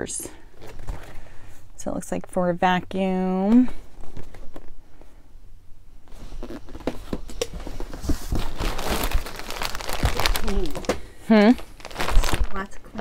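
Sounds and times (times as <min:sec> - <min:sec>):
packaging crinkling and rustling: 0:06.1 - 0:12.7
packaging knocks and clicks: 0:06.7 - 0:11.0.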